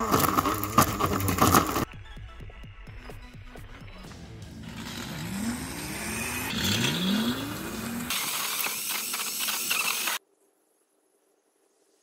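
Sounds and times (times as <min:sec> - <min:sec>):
electric motor whining: 0:00.0 - 0:01.9, 0:04.6 - 0:10.2.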